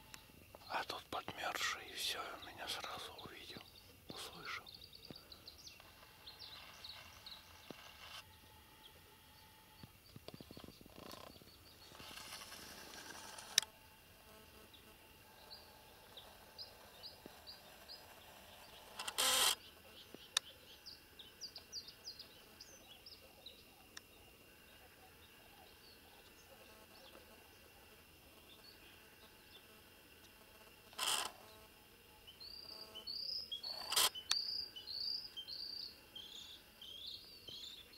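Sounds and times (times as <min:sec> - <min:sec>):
small bird chirping: 0:00.0 - 0:13.7, 0:14.3 - 0:31.6, 0:32.2 - 0:37.9
rustling in dry brush: 0:05.8 - 0:08.2, 0:11.8 - 0:13.6
noisy rasps: 0:10.9 - 0:13.7.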